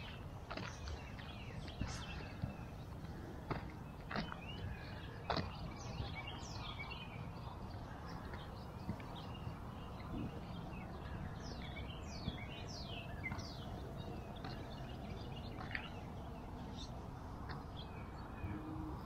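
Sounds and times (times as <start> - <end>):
small birds singing: 0.0 - 19.0.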